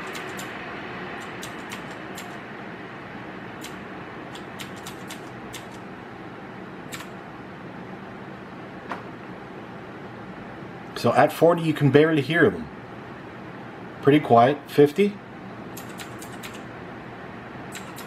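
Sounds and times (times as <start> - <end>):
sharp clicks: 0.0 - 0.5, 1.2 - 2.4, 3.6 - 5.8, 6.9 - 7.1, 15.7 - 16.6, 17.7 - 18.0
cooling fans whooshing: 0.0 - 18.0.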